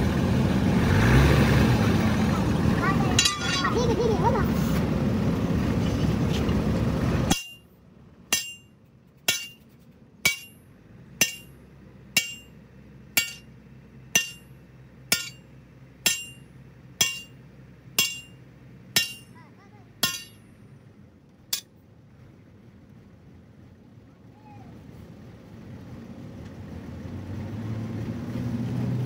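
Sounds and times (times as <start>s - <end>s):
sledgehammer striking steel: 3.2s - 3.8s, 7.3s - 7.7s, 8.3s - 9.6s, 10.2s - 17.4s, 18.0s - 19.4s, 20.0s - 20.5s.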